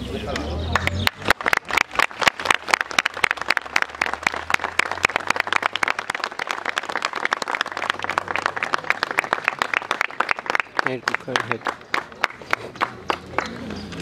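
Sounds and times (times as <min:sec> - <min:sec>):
crowd applauding: 0:00.3 - 0:14.0.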